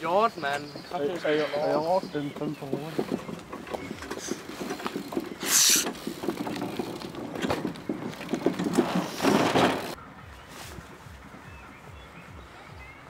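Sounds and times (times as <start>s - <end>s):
knocks and rustling: 1.8s - 10.0s.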